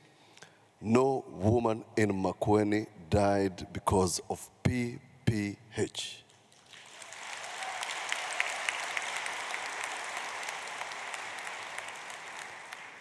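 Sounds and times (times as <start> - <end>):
audience applause: 6.6 - 13.0.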